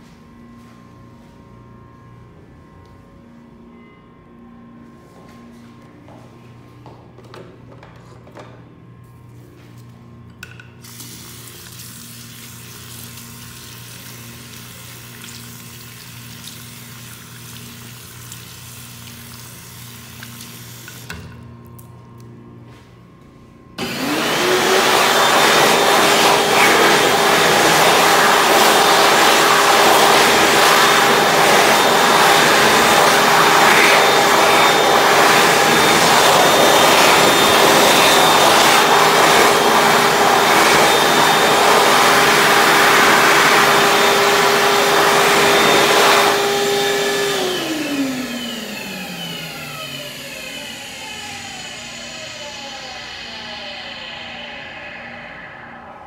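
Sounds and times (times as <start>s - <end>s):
hand dryer running: 10.5s - 21.4s, 23.8s - 56.0s.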